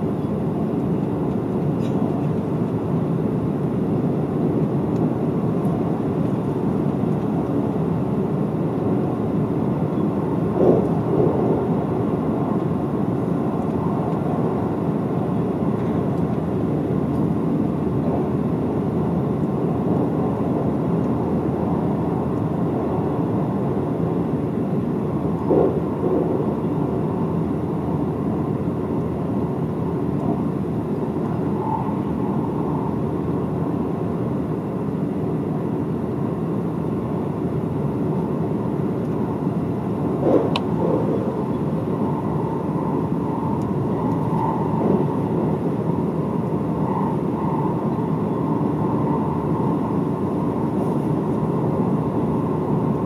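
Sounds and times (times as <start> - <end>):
train wheels rumbling on rail: 9.8 - 17.4, 24.9 - 28.4, 39.2 - 51.9.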